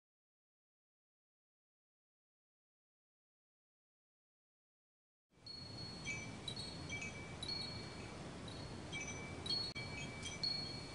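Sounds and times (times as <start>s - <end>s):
wind chimes ringing: 5.4s - 10.9s.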